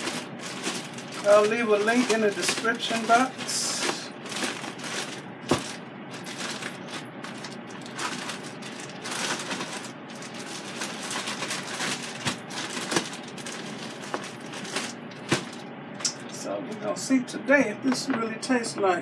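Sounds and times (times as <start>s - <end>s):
plastic bag crinkling: 0.0s - 15.7s.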